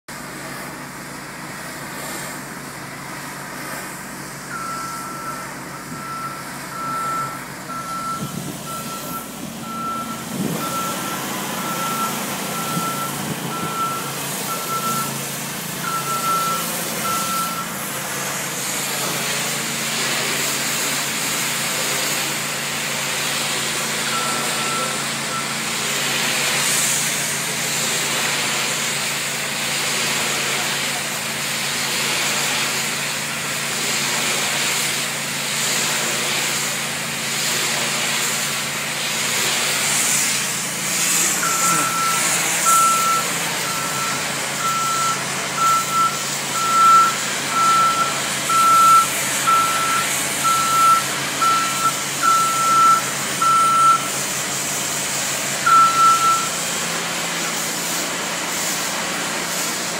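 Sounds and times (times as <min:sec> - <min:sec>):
pressure washer spray hissing: 0:00.1 - 0:59.9
steady engine: 0:00.1 - 0:59.9
motion alarm beeping: 0:04.5 - 0:15.2, 0:15.8 - 0:17.8, 0:24.0 - 0:25.6, 0:41.4 - 0:54.2, 0:55.7 - 0:56.6.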